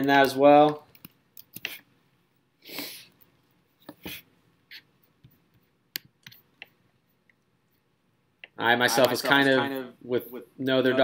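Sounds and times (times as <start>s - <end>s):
quiet clicks and taps: 0.0s - 1.9s, 3.1s - 9.4s.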